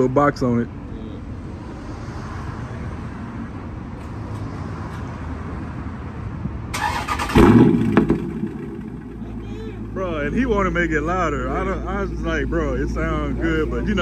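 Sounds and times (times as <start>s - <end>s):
car engine idling: 6.7s - 14.0s
harsh engine burst: 6.8s - 9.9s.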